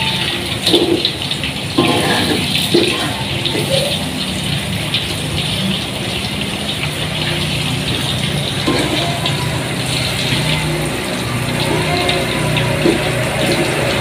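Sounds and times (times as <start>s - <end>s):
fritters sizzling in hot oil: 0.0s - 14.0s.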